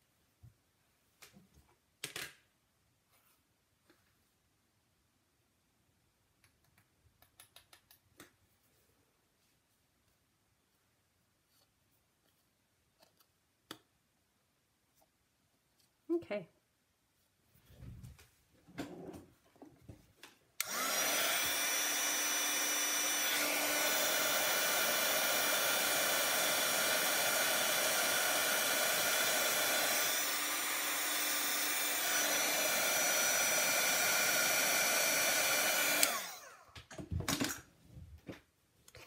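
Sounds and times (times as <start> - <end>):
heat tool blowing hot air: 20.6 - 36.6.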